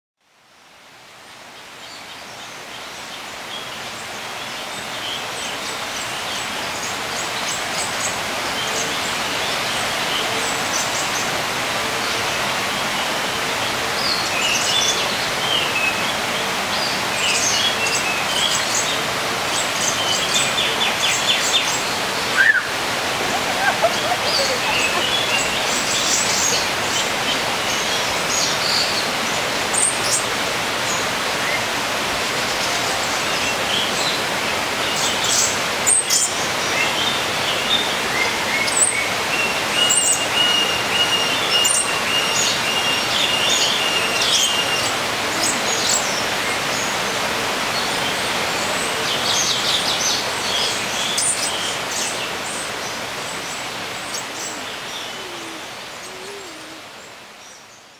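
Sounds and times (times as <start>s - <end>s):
birds chirping: 12.2s - 31.7s, 32.5s - 57.9s.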